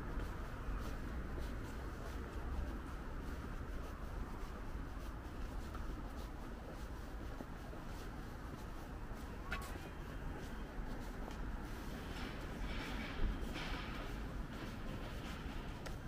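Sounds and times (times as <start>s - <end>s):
distant traffic hum: 0.0s - 16.0s
faint footsteps on pavement: 0.0s - 16.0s.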